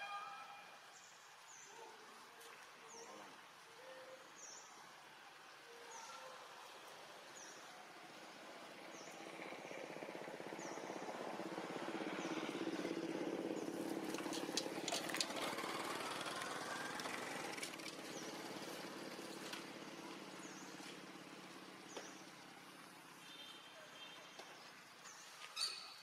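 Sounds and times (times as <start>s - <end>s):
passing motor vehicle engine: 8.1s - 23.2s.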